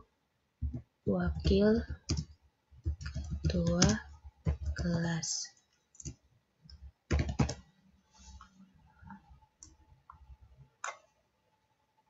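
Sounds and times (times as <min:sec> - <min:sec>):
computer keyboard typing: 0:00.6 - 0:05.2, 0:05.9 - 0:07.7.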